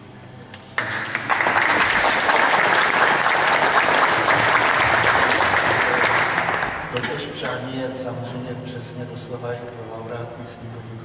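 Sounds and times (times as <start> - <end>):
audience applauding: 0.8 - 7.0.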